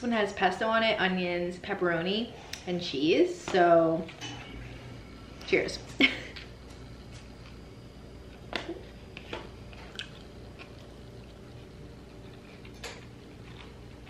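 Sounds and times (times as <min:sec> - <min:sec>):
person chewing pizza: 0:06.7 - 0:14.0.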